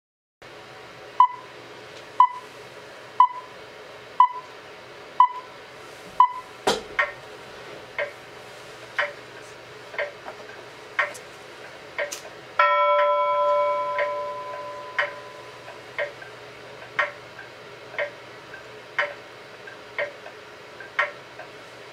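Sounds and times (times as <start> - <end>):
clock ticking with metallic ring: 12.0 - 21.2
bell-like tone: 12.6 - 15.7.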